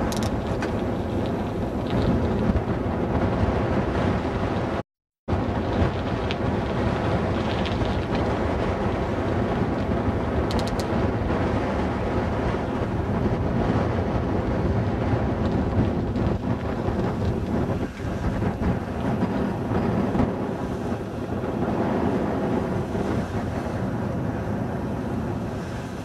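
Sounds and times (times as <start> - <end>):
wind buffeting microphone: 0.0 - 26.0
faint clicks: 10.5 - 10.9.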